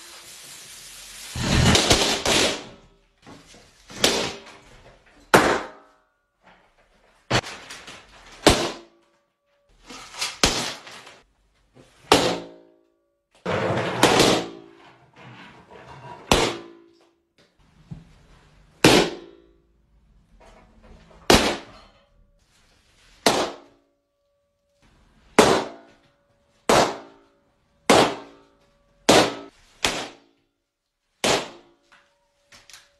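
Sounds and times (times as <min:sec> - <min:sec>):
balloons bursting: 0:01.3 - 0:02.7
rough crash: 0:01.4 - 0:02.4.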